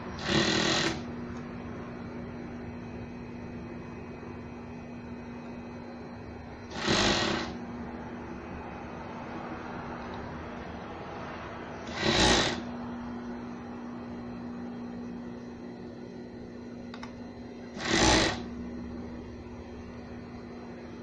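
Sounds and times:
machine stitching bursts: 0:00.0 - 0:01.1, 0:06.7 - 0:07.6, 0:11.8 - 0:12.7, 0:17.7 - 0:18.5
overlock machine humming: 0:00.0 - 0:21.0.

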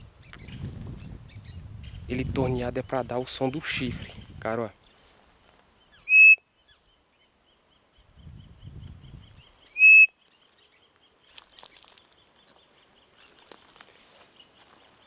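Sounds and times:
high whistled bird call: 0:06.0 - 0:06.4, 0:09.7 - 0:10.2.

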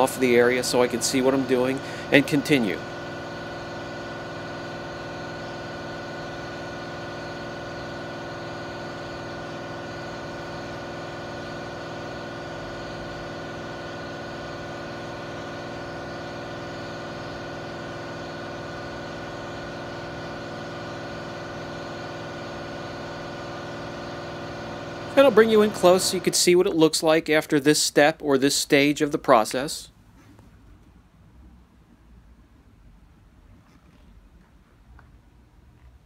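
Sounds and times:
orbital sander running: 0:00.0 - 0:26.6.

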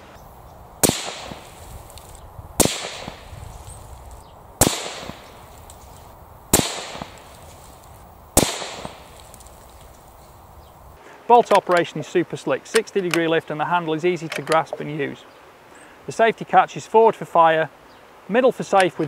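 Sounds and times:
rifle shots: 0:00.8 - 0:01.9, 0:02.6 - 0:03.9, 0:04.6 - 0:05.9, 0:06.5 - 0:07.6, 0:08.4 - 0:09.6.

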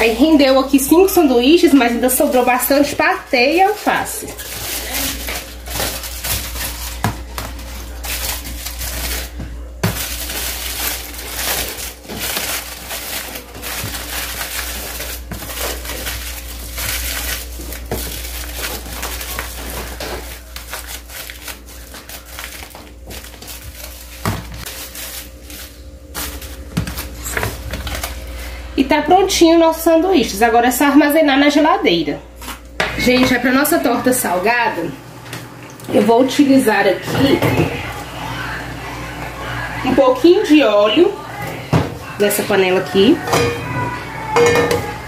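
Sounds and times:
aluminium foil crinkling: 0:00.0 - 0:28.6
steady low hum: 0:00.0 - 0:37.1.

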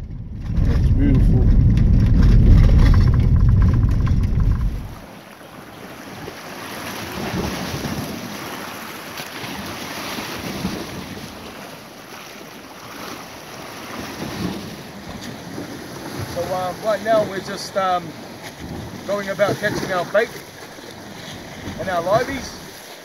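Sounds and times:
low rumble: 0:00.0 - 0:05.0
wind buffeting microphone: 0:00.0 - 0:05.1
ocean waves washing in: 0:00.0 - 0:23.0.

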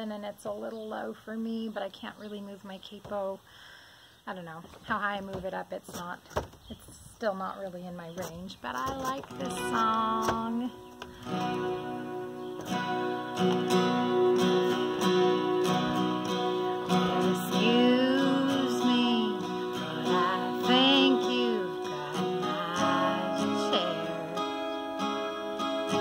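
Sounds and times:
woman singing with vibrato: 0:09.0 - 0:10.9, 0:16.8 - 0:26.0
acoustic guitar strumming chords: 0:09.2 - 0:26.0.

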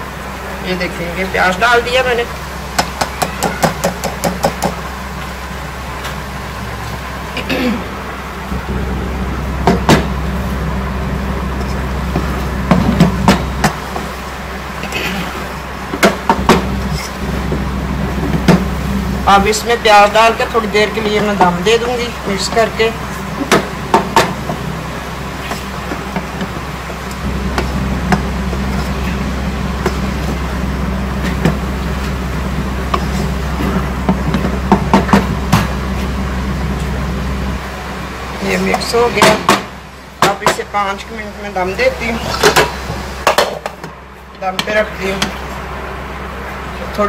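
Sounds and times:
low hum: 0:00.0 - 0:47.0
wooden spatula knocking on metal pot: 0:02.8 - 0:04.8, 0:23.5 - 0:24.6.

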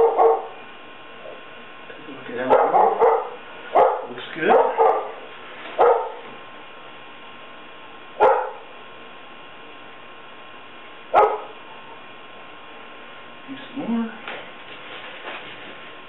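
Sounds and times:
dog barking: 0:00.0 - 0:00.6, 0:02.4 - 0:06.3, 0:08.2 - 0:08.7, 0:11.1 - 0:11.6
faint steady hum: 0:00.0 - 0:16.0.

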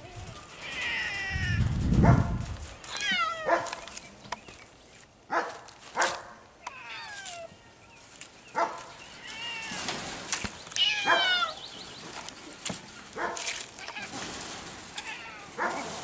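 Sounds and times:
serval cats chirping and meowing: 0:00.2 - 0:01.7, 0:02.9 - 0:03.5, 0:06.6 - 0:08.1, 0:09.0 - 0:09.9, 0:10.7 - 0:11.8.

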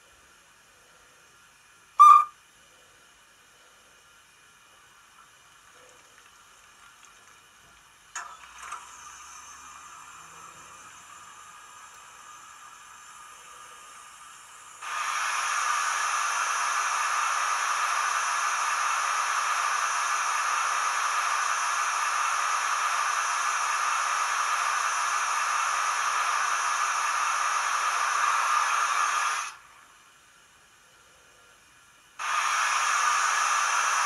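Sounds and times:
steam hiss from small speaker: 0:08.8 - 0:30.1, 0:32.1 - 0:34.0.

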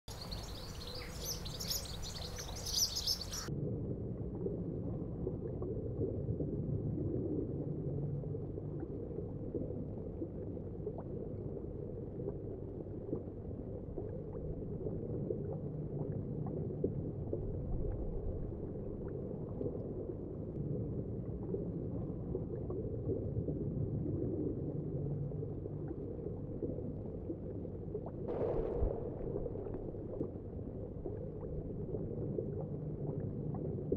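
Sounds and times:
muffled underwater water sound: 0:00.0 - 0:33.9
birds chirping: 0:00.1 - 0:03.5
water splash: 0:28.3 - 0:31.8.

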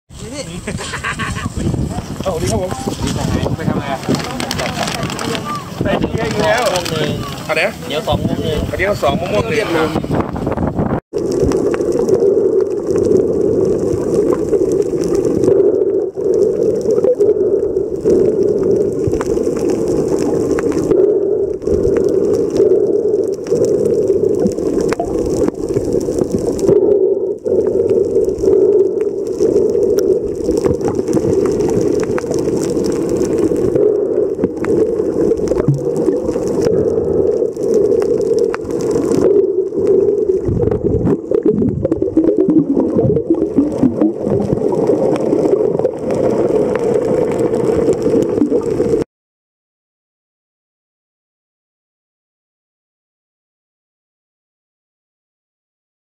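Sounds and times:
underwater low hum: 0:00.1 - 0:49.0
faint underwater clicks: 0:01.9 - 0:08.2, 0:11.2 - 0:49.0.

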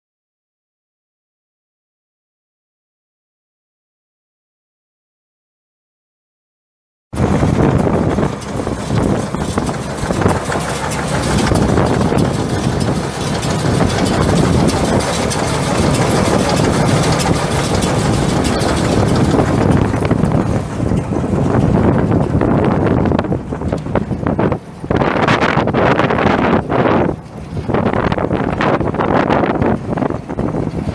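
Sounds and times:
tractor engine running: 0:07.2 - 0:30.9.

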